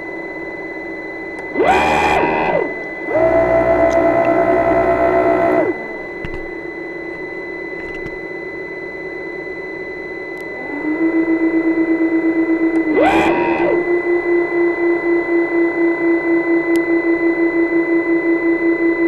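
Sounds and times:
quiet hum with high tone: 0.0 - 19.0
small electric motors whining: 1.4 - 6.4, 10.4 - 14.2.

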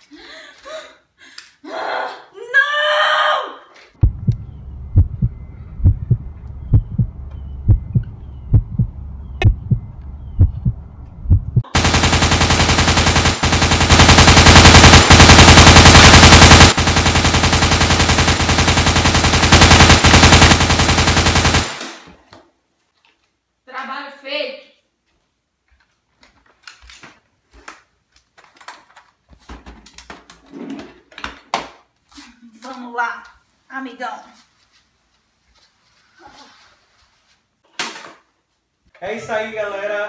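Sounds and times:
heartbeat thumps: 4.0 - 11.7
machine-gun fire: 11.7 - 22.1.

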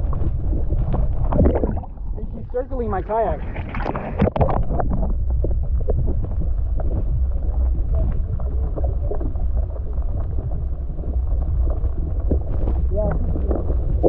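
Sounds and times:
underwater low rumble: 0.0 - 14.0.

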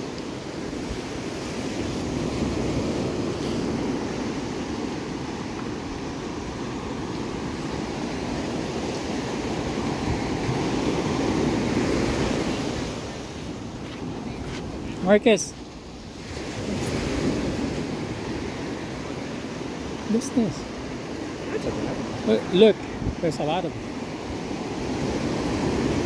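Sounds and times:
ocean surf breaking: 0.0 - 26.0
wind on the microphone: 20.4 - 26.0.

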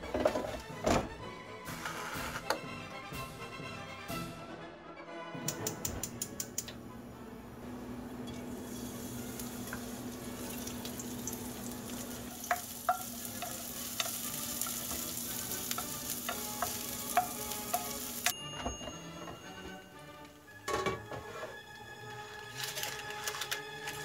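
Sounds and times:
food sizzling in a frying pan: 8.4 - 18.3
utensil knocking against pan: 12.4 - 14.2, 15.7 - 18.0.

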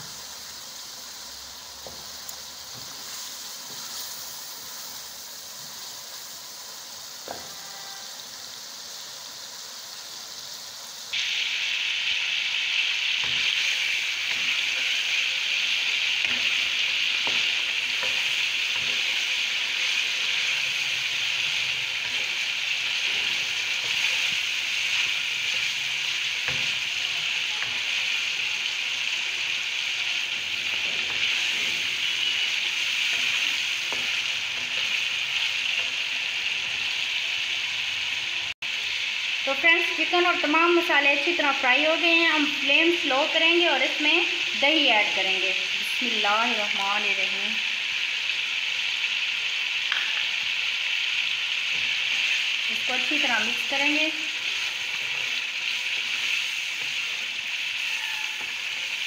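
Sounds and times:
chicken sizzling in a pan: 0.0 - 59.0.

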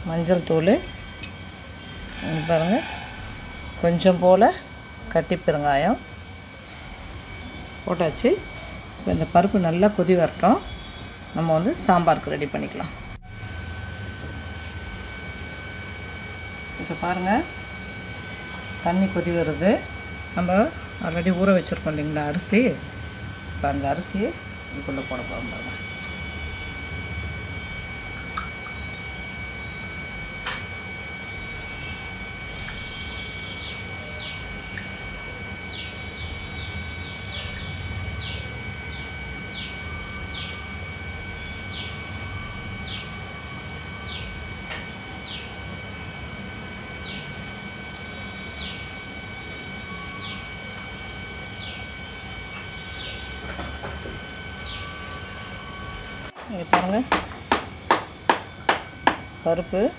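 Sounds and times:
wood fire rumbling: 0.0 - 59.8
pots boiling: 0.0 - 59.9
sharp knocks: 56.4 - 59.2.

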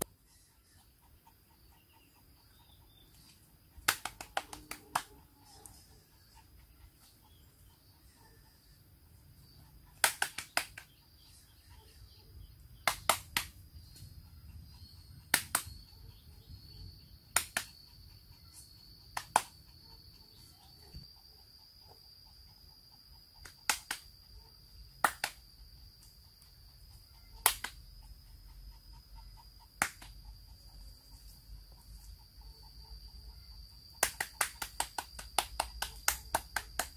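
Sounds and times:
sharp hand claps: 3.9 - 5.1, 10.0 - 10.9, 12.9 - 13.5, 17.4 - 17.7, 19.2 - 19.5, 25.0 - 25.4, 27.4 - 27.8, 29.8 - 30.1, 34.0 - 36.9.

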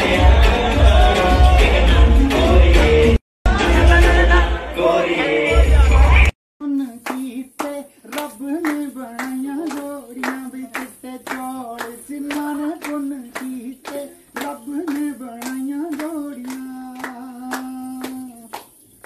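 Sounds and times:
woman singing a wavering melody: 6.6 - 18.6
group clapping in a steady beat: 7.0 - 19.0.

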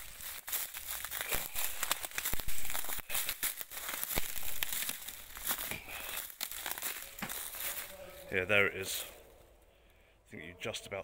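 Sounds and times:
twigs snapping underfoot: 0.0 - 8.2
footsteps on dry leaves: 0.0 - 9.4
bracken rustling: 0.0 - 9.7.

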